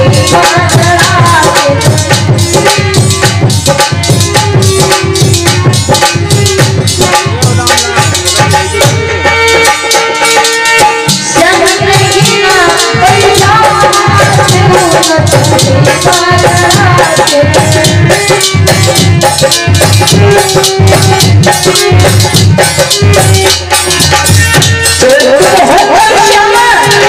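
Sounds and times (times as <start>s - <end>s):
woman singing: 0.0s - 3.2s, 11.3s - 19.0s, 25.0s - 27.0s
hand drum: 0.0s - 27.0s
jingling hand percussion: 0.0s - 27.0s.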